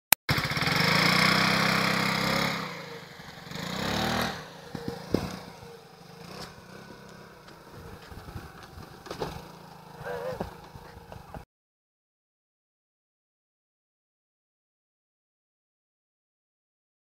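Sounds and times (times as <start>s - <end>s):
scooter engine revving: 0.3s - 11.4s.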